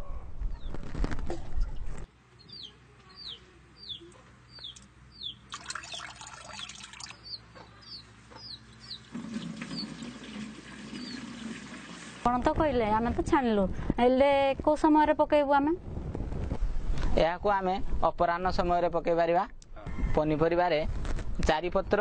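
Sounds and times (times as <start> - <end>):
bird chirping: 2.3 - 10.2, 10.9 - 11.4
liquid splashing through strainer: 5.5 - 7.2, 9.0 - 12.2.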